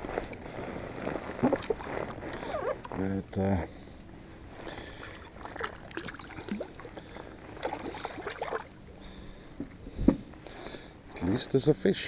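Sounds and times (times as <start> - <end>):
water splashing and gurgling: 1.4 - 2.0, 4.9 - 9.0.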